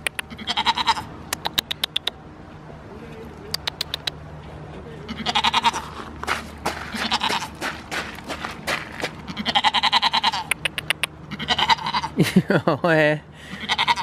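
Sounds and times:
goat bleating: 0.3 - 1.1, 5.1 - 6.0, 6.9 - 7.6, 9.3 - 10.6, 11.3 - 12.2, 13.5 - 14.0
footsteps on gravel and mud: 5.7 - 9.5.

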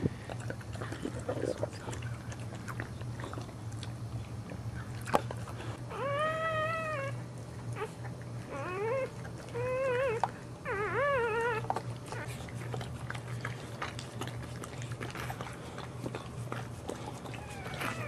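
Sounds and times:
low steady hum: 0.0 - 18.0
dog whining: 5.7 - 12.9, 16.9 - 18.0.

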